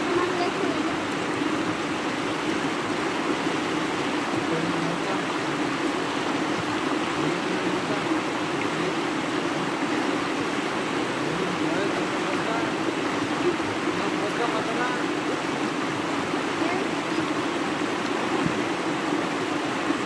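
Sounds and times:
river rushing over stones: 0:00.0 - 0:20.0.

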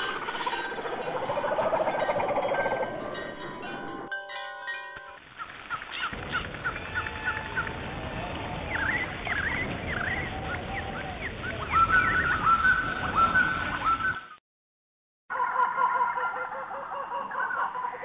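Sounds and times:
birds chirping: 0:00.0 - 0:04.0, 0:05.2 - 0:07.9, 0:08.5 - 0:14.4.

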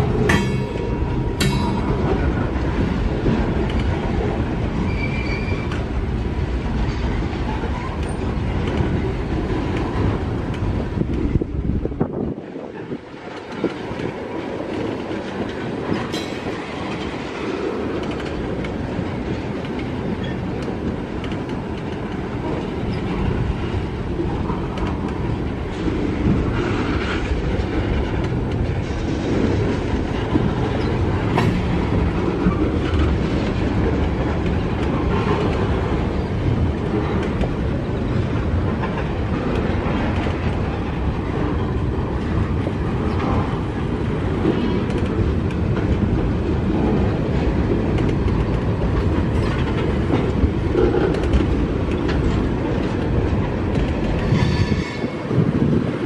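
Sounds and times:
steel wheels on rails: 0:00.0 - 0:56.0.

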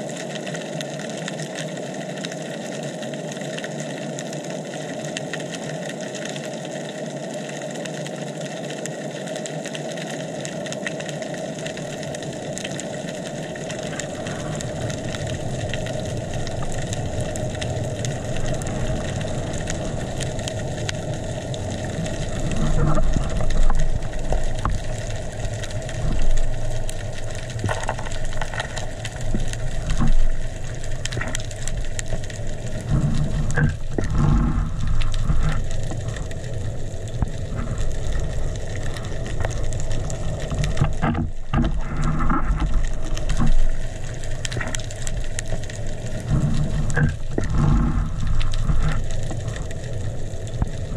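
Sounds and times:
muffled underwater hiss: 0:00.0 - 0:50.9
water rumbling and knocks: 0:11.6 - 0:50.9.

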